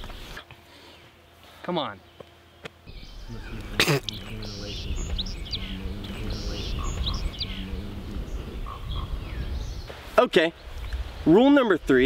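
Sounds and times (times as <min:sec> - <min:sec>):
high chirp-like notes: 0:02.9 - 0:09.2
steady low bass: 0:02.9 - 0:09.9.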